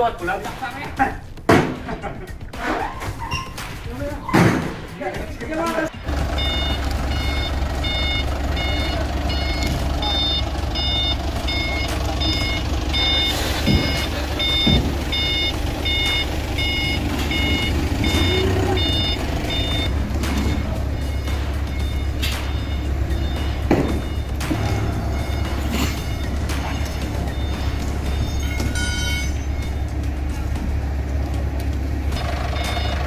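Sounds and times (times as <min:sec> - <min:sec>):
reversing alarm beeping: 0:05.9 - 0:31.4, 0:32.1 - 0:33.0
forklift engine running: 0:05.9 - 0:33.0.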